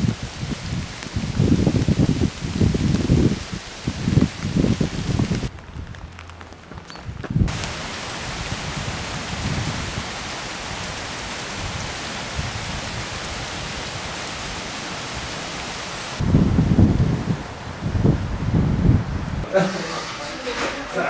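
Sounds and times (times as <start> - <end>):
wind rumble on microphone: 0.0 - 19.5
water rushing: 7.5 - 18.2.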